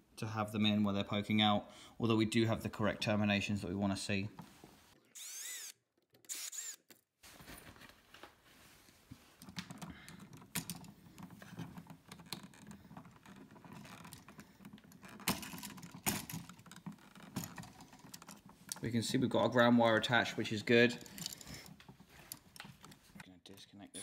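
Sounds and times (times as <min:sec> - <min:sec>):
cordless drill whirring: 0:05.1 - 0:06.9.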